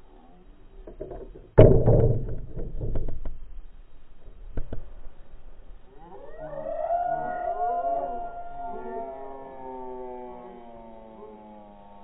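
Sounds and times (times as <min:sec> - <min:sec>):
heavy thump with rumble: 0:00.8 - 0:03.6.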